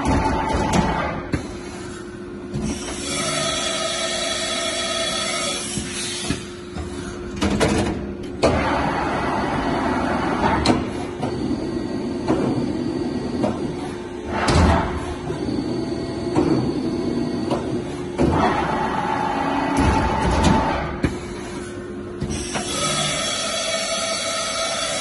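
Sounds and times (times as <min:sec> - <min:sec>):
machine mechanical hum: 0:00.0 - 0:25.0
machine sliding and clunking: 0:05.8 - 0:18.8.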